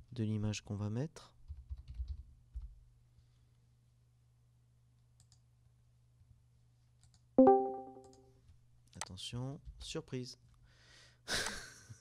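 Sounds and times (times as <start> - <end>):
loud ringing musical note: 7.4 - 8.1.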